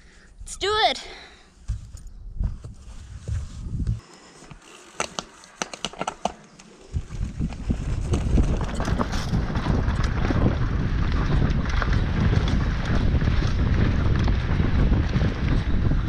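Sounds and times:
tyres on dirt: 0:01.5 - 0:16.0
wind on microphone: 0:01.7 - 0:04.0, 0:06.9 - 0:16.0
bike clicks and rattles: 0:01.7 - 0:16.0.

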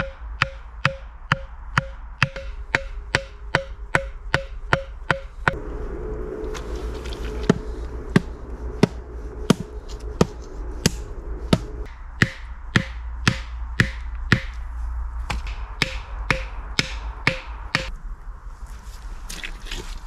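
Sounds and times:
hatchet knocking wooden stake: 0:00.0 - 0:05.3, 0:08.2 - 0:14.6, 0:15.3 - 0:17.9.

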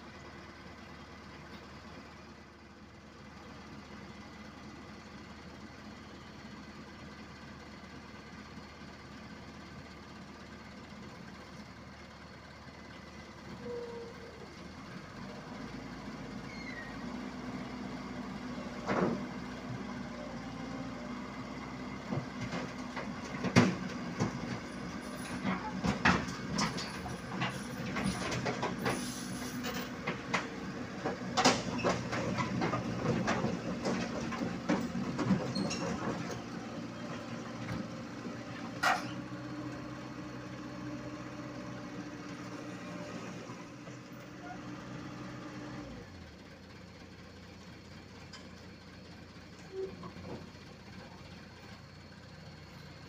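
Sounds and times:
diesel engine running: 0:00.0 - 0:53.0
steel tracks clanking: 0:23.6 - 0:36.4.

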